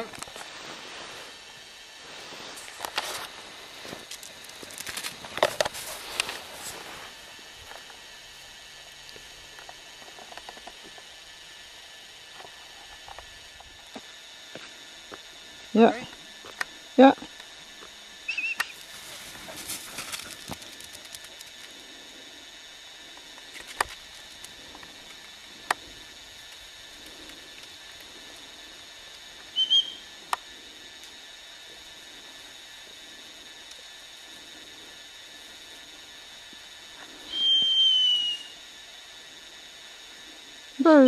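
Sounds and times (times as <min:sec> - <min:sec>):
dog whistle blasts: 0:18.3 - 0:18.8, 0:29.6 - 0:30.0, 0:37.3 - 0:38.6.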